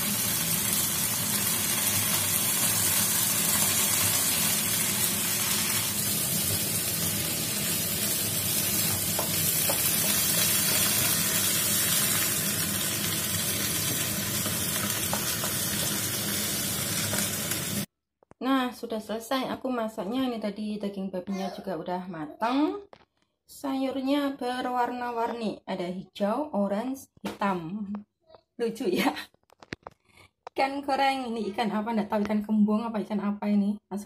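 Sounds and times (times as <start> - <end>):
vegetables sizzling in wok: 0.0 - 17.9.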